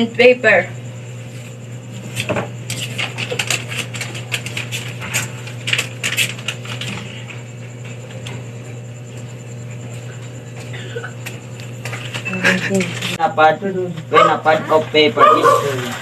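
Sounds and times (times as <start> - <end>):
steady low hum: 0.0 - 16.0
hands handling paper: 2.2 - 7.2.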